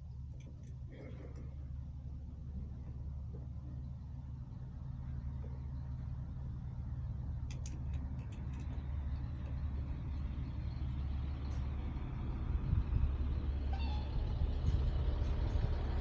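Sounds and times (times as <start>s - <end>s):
motorcycle engine idling: 0.0s - 16.0s.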